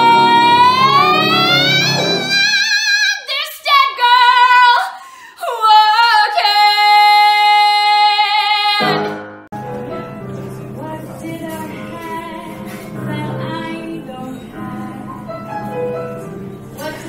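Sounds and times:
quiet recorded music: 0:00.0 - 0:04.0, 0:06.3 - 0:17.0
woman singing solo: 0:00.0 - 0:09.1.

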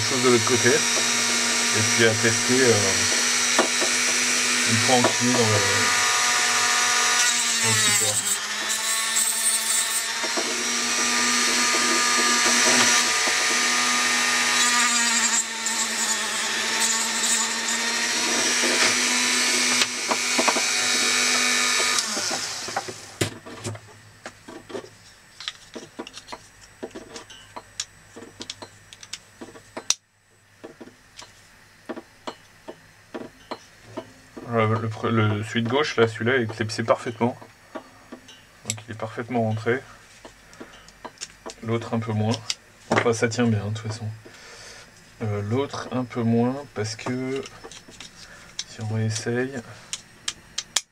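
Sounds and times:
rotary tool grinding plastic: 0:00.0 - 0:23.2.

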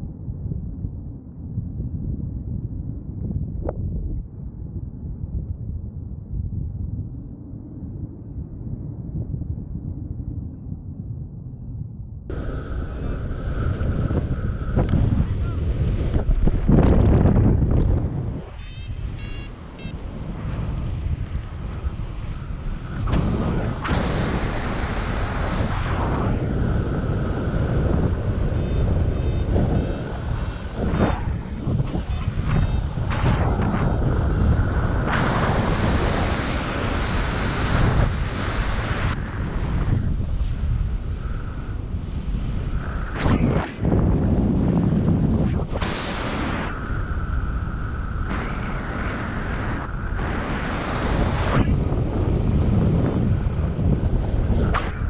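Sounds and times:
wind buffeting microphone: 0:00.0 - 0:55.0
steady high-pitched tone: 0:18.4 - 0:20.2
short high beeps: 0:18.6 - 0:20.0.

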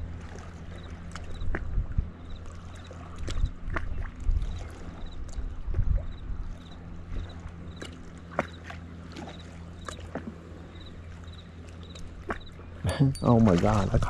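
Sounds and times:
wind buffeting microphone: 0:01.2 - 0:07.6.

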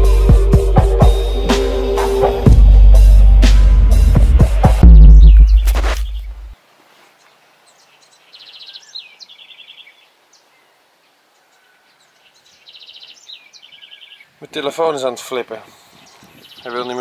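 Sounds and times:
faint outdoor hiss: 0:04.8 - 0:17.0
songbird singing trills: 0:07.2 - 0:14.4, 0:15.9 - 0:17.0.

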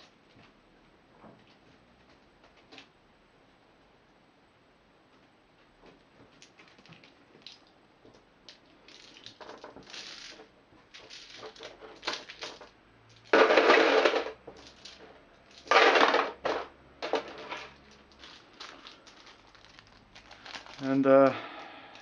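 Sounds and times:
plastic dice clattering: 0:11.0 - 0:18.9.

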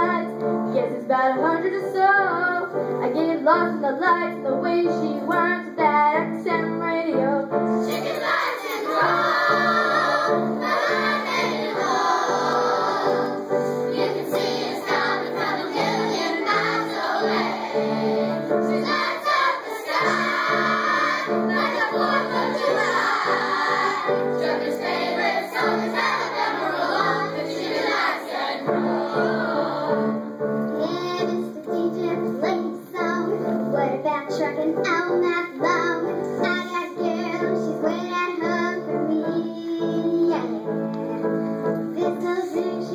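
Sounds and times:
children singing: 0:07.7 - 0:34.0.

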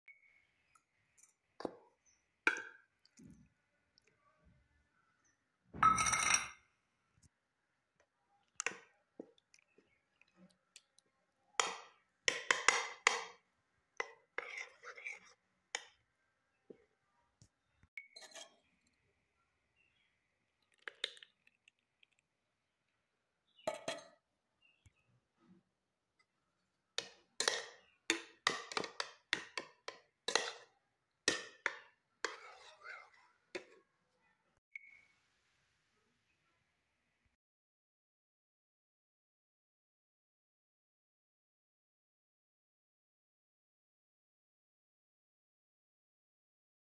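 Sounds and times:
metal spoon stirring in ceramic bowl: 0:08.5 - 0:13.4, 0:14.0 - 0:16.0, 0:27.0 - 0:33.9
spoon tapping against bowl: 0:11.6 - 0:13.4, 0:27.0 - 0:30.7.

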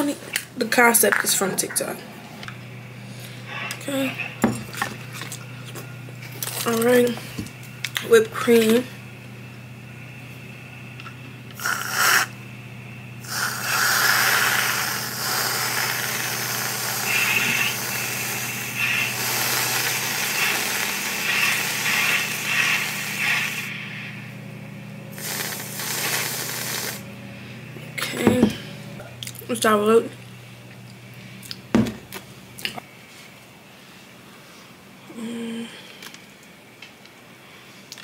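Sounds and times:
steady low hum: 0:00.0 - 0:38.0
whipped cream can spraying: 0:11.6 - 0:12.3, 0:13.3 - 0:23.7, 0:25.2 - 0:27.0.

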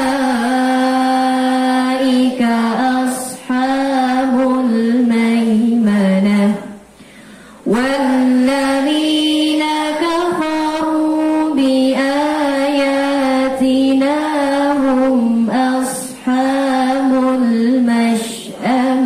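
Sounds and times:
boys chanting in unison: 0:07.7 - 0:19.0.

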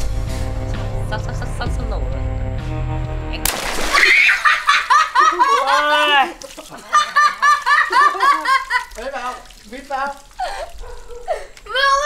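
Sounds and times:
water balloon bursting: 0:03.4 - 0:05.0, 0:06.2 - 0:11.8
water gushing on tiles: 0:03.4 - 0:12.0
loud laughter: 0:04.0 - 0:09.0.

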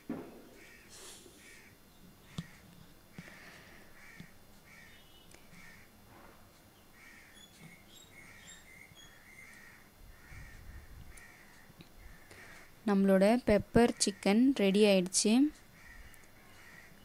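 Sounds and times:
crows cawing: 0:00.6 - 0:06.0, 0:06.9 - 0:07.5, 0:08.2 - 0:12.8, 0:15.7 - 0:17.0
high bird chirps: 0:07.3 - 0:09.6.

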